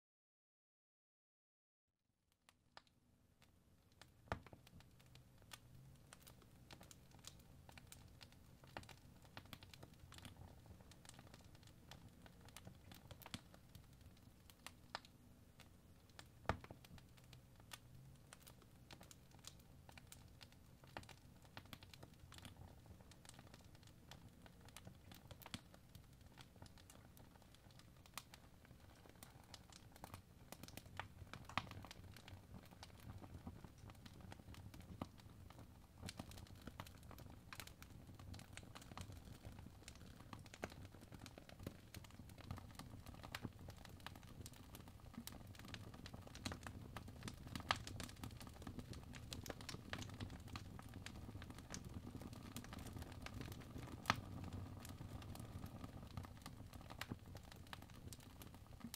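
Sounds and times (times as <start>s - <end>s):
fire crackling and popping: 2.8s - 58.9s
low rumble of flames: 18.4s - 58.9s.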